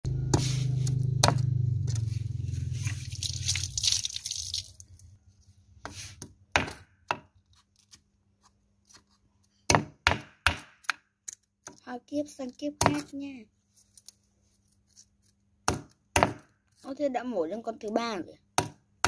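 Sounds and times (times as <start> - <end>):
low steady hum: 0.1 - 5.8.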